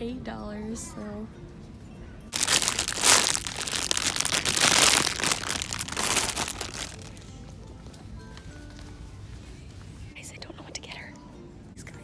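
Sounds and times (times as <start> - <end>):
plastic wrapping crinkling: 2.3 - 7.2.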